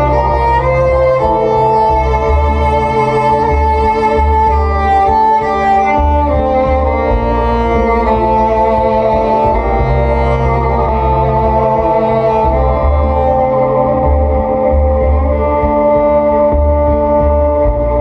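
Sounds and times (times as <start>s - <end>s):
electric cello bowed: 0.0s - 18.0s
looped low bass figure: 0.0s - 18.0s.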